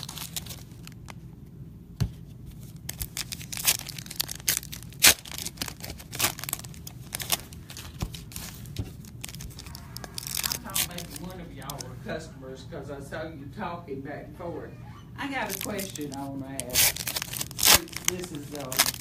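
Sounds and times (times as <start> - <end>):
foil wrappers tearing and crinkling: 0.0 - 1.1, 2.6 - 11.9, 15.4 - 19.0.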